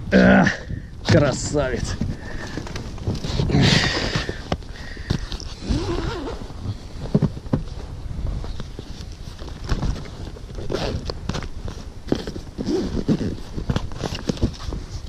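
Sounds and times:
knocks and taps in inflatable boat: 7.1s - 7.7s.

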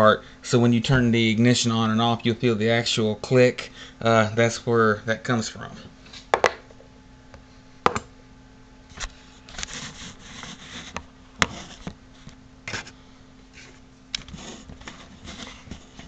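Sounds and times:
rubbing and scraping: 9.0s - 11.9s, 12.7s - 16.0s.

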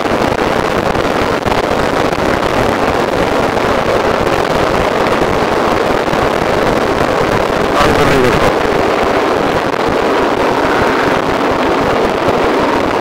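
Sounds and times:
road and vehicle noise: 0.0s - 13.0s
wind buffeting microphone: 0.0s - 13.0s.

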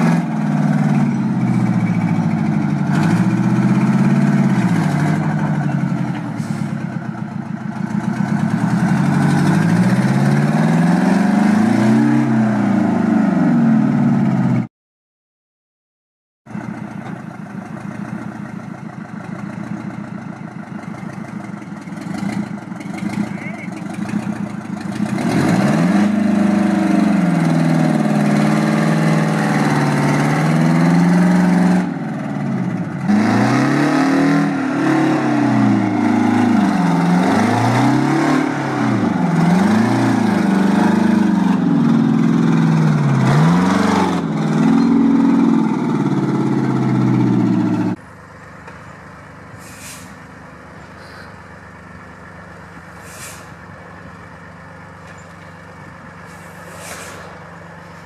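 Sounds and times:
diesel truck engine revving: 0.0s - 14.7s, 17.6s - 58.0s
short air hisses: 49.6s - 50.2s, 50.9s - 51.4s, 52.9s - 53.6s, 56.2s - 58.0s.

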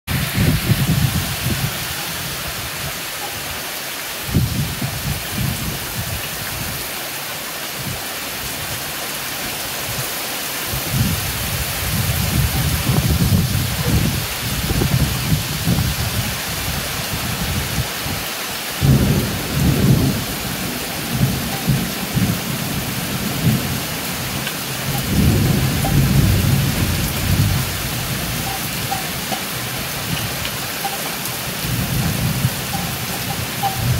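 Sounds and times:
thunder rumbling: 0.1s - 2.9s, 10.8s - 16.4s, 18.8s - 33.9s
heavy rain pouring: 0.1s - 33.9s.

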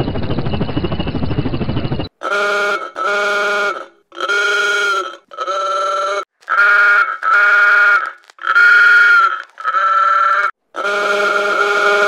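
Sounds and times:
helicopter rotor chop: 0.0s - 2.1s
vehicle horn honks: 2.2s - 5.8s, 6.5s - 9.3s, 10.8s - 12.0s.

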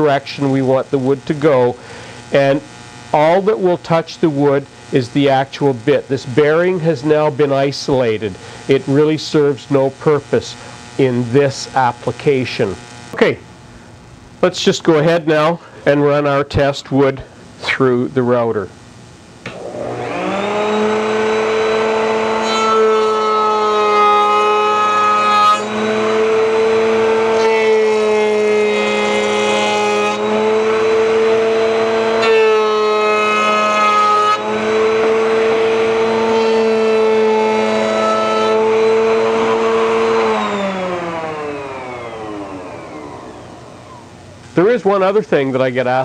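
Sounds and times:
router bit cutting wood: 19.5s - 44.4s
router motor running: 19.5s - 44.4s
router spinning down: 19.5s - 44.6s.

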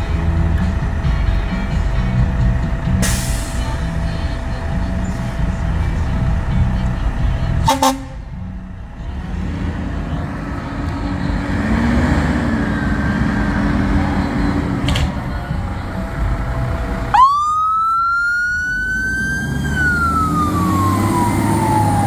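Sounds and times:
fire engine rumbling: 0.0s - 22.0s
low horn tone: 7.1s - 8.5s.

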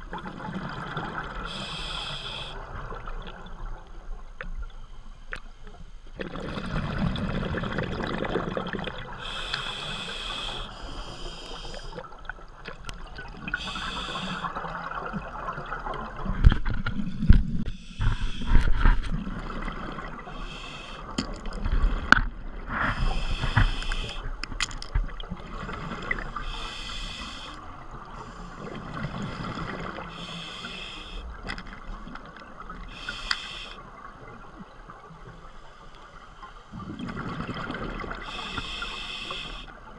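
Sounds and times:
regulator inhalation hiss: 1.4s - 2.6s, 9.2s - 12.1s, 13.6s - 14.6s, 17.7s - 18.6s, 20.3s - 21.1s, 22.9s - 24.3s, 26.4s - 27.6s, 29.3s - 31.4s, 32.9s - 33.9s, 38.2s - 39.8s
exhaled air bubbling: 6.1s - 30.6s, 36.7s - 39.7s.

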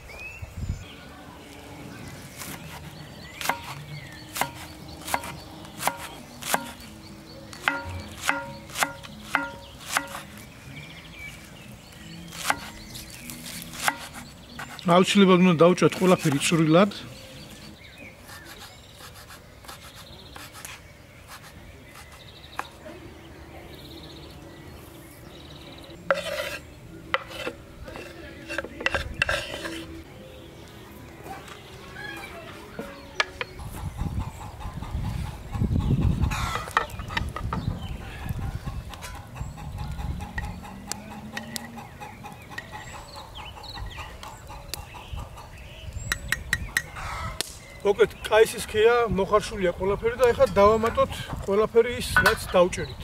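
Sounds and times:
knife chopping on wooden board: 7.6s - 10.2s
scraping on a wooden board: 26.1s - 30.0s.

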